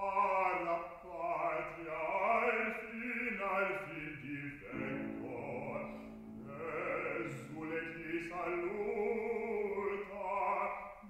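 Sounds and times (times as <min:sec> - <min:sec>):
bass voice singing opera: 0:00.0 - 0:11.0
piano chord: 0:04.7 - 0:07.8.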